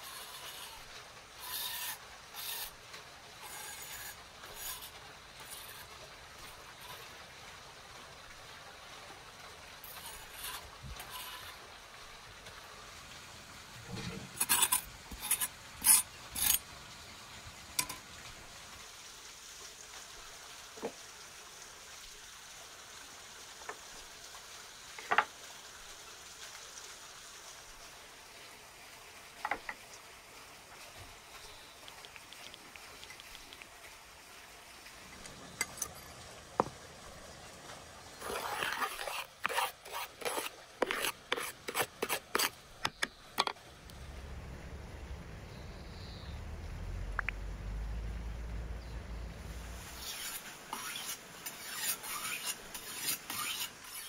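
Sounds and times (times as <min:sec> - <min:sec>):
knife scraping on stone slab: 0:03.4 - 0:05.9, 0:09.9 - 0:11.6, 0:14.4 - 0:16.6, 0:38.2 - 0:43.5, 0:49.9 - 0:54.0.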